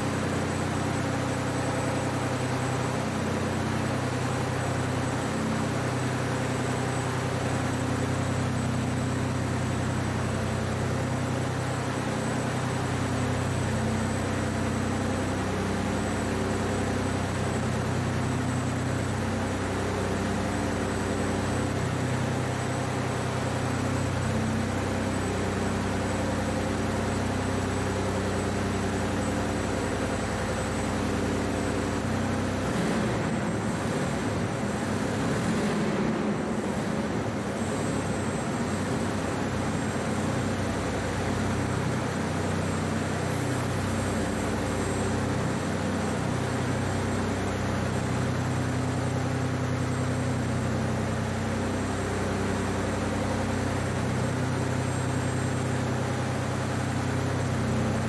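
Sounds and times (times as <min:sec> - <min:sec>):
truck engines idling: 0:00.0 - 0:58.0.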